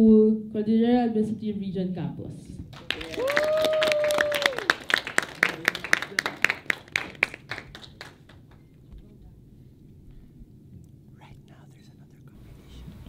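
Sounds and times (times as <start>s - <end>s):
audience applauding: 2.7s - 8.8s
person cheering: 2.9s - 4.9s.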